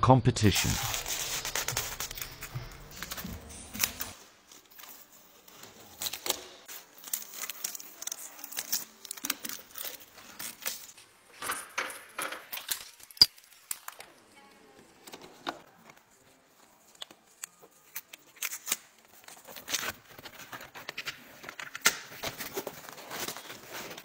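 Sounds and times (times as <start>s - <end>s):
plastic film crackling and tearing: 0.6s - 11.1s, 12.5s - 24.0s.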